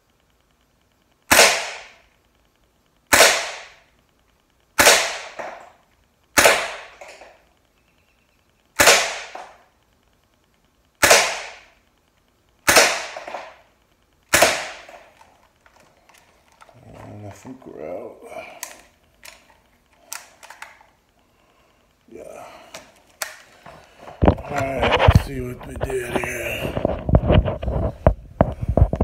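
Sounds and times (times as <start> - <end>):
pellet pistol shots: 1.3 - 2.0, 3.1 - 3.8, 4.8 - 5.6, 6.4 - 7.1, 8.8 - 9.6, 11.0 - 11.7, 12.6 - 13.6, 14.3 - 15.0.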